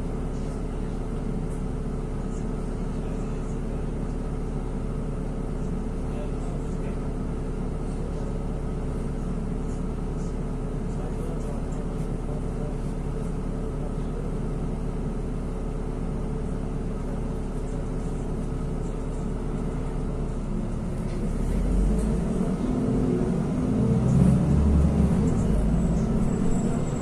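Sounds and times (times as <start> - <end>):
bus cabin hum: 0.0 - 27.0
bus low rumble pulling away: 16.4 - 27.0.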